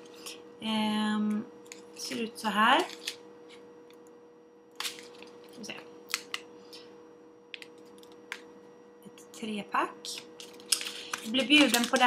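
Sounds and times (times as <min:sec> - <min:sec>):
faint steady hum: 0:00.0 - 0:12.0
plastic packaging clicks and crinkles: 0:02.8 - 0:03.2, 0:04.8 - 0:06.5, 0:10.1 - 0:12.0.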